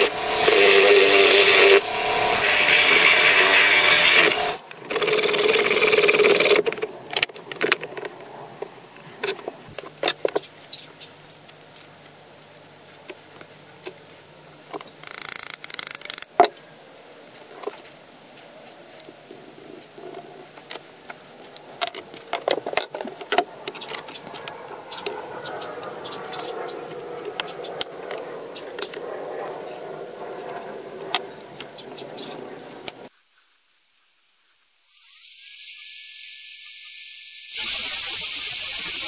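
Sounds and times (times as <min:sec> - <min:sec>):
angle grinder whining: 0:00.0 - 0:06.5, 0:34.9 - 0:39.0.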